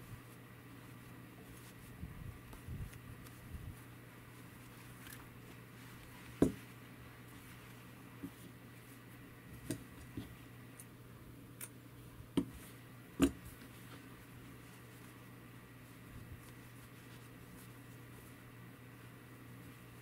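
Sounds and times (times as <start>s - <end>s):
soft knocks and clicks of handling: 6.2s - 6.7s, 9.6s - 10.4s, 12.3s - 14.1s.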